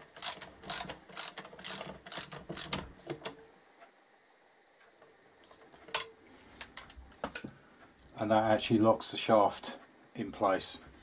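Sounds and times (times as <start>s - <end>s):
socket ratchet clicking: 0.0s - 2.9s.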